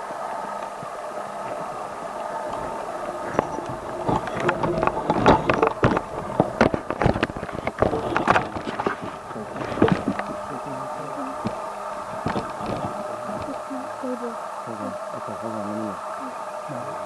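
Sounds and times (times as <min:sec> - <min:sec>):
steady background hum: 0:00.0 - 0:17.0
handling clicks and knocks: 0:01.5 - 0:13.7.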